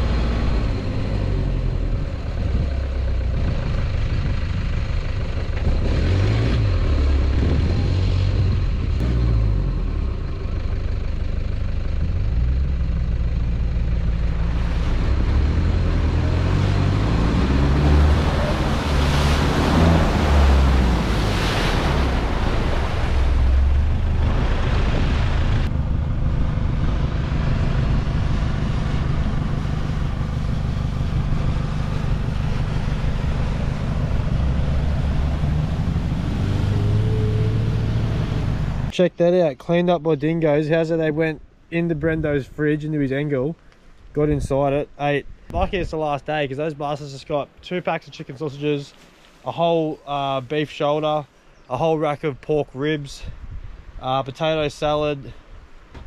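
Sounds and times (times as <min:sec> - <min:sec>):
vehicle engine running: 0:00.0 - 0:38.9.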